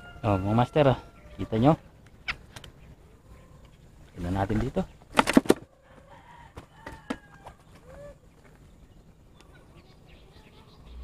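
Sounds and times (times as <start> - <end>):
faint bird chirps and whistles: 9.3 - 11.0.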